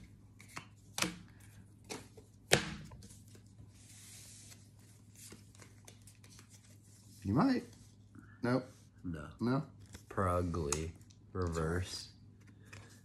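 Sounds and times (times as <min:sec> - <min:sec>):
cards sliding rustle: 0:00.0 - 0:08.0
cards clicking and snapping: 0:00.3 - 0:03.3.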